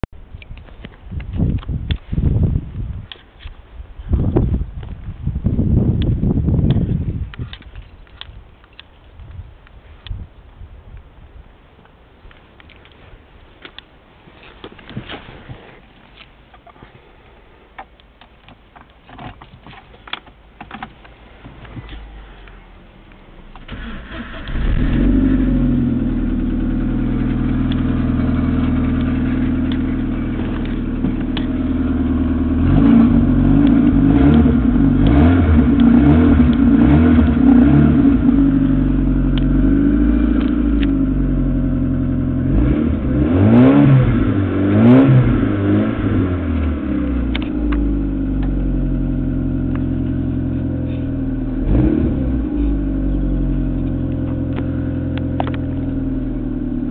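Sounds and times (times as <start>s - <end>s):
car engine idling and revving: 19.8s - 56.9s.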